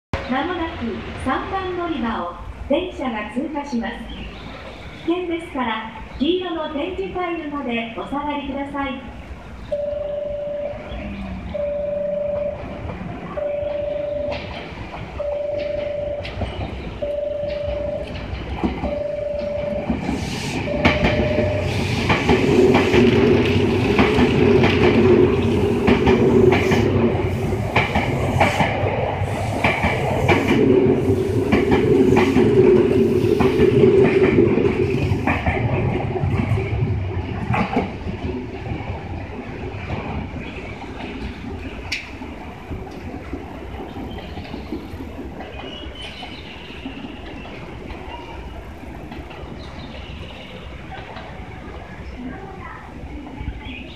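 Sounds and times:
platform warning tone beeping: 0:09.8 - 0:14.6, 0:15.2 - 0:16.4, 0:17.0 - 0:18.2, 0:18.9 - 0:19.9, 0:20.6 - 0:21.8
train wheels clattering over joints: 0:14.2 - 0:51.7.

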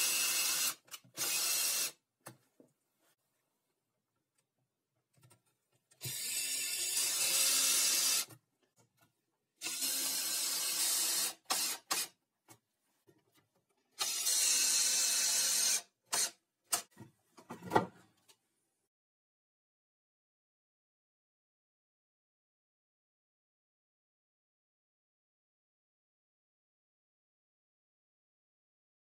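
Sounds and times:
cordless drill driving screws: 0:00.0 - 0:02.0, 0:06.0 - 0:08.3, 0:09.6 - 0:12.1, 0:14.0 - 0:16.4.

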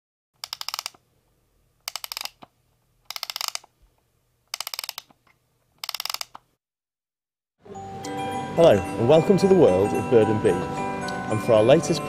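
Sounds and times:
mechanical ratcheting clicks: 0:00.4 - 0:01.0, 0:01.8 - 0:02.5, 0:03.1 - 0:03.7, 0:04.5 - 0:05.2, 0:05.8 - 0:06.4.

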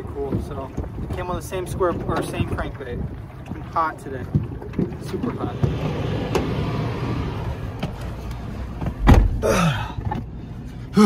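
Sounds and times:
outdoor background noise: 0:01.9 - 0:11.0
car door slamming: 0:08.8 - 0:09.5
man grunting: 0:09.4 - 0:10.0.

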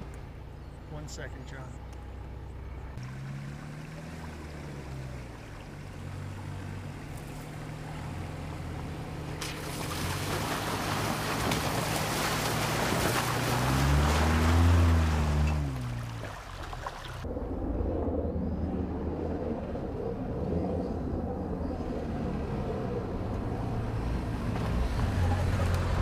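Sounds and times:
vehicle engine hum: 0:00.0 - 0:26.0
tyres splashing through water: 0:03.0 - 0:17.2.

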